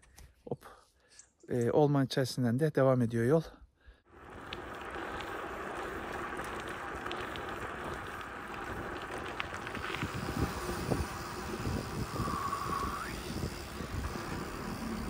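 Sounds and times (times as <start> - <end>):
bicycle tyres on dirt road: 4.0 - 15.0
low bumps: 4.1 - 15.0
wind on microphone: 9.5 - 15.0.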